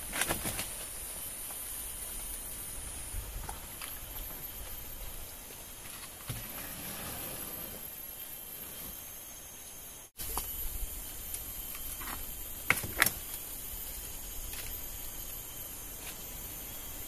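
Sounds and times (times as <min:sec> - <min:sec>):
knocks and rustles of bamboo trap: 0:00.0 - 0:00.9
high-pitched insect buzz: 0:00.0 - 0:17.0.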